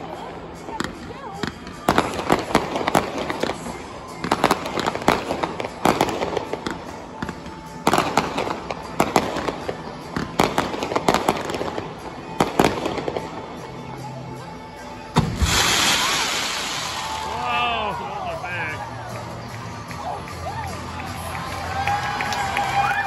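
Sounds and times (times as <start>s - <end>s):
fireworks bursting: 0.0s - 13.7s, 15.2s - 17.9s.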